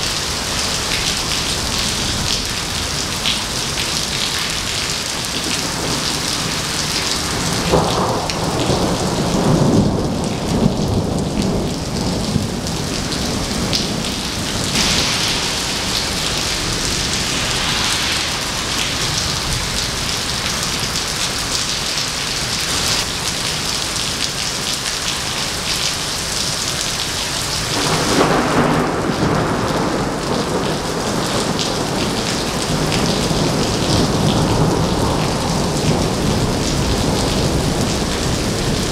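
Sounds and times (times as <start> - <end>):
heavy rain on wet pavement: 0.0 - 38.9
thunder rumbling: 5.2 - 22.2, 27.7 - 38.9.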